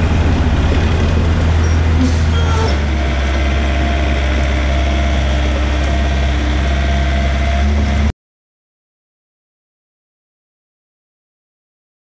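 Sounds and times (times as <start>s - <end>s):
diesel engine running: 0.0s - 8.1s.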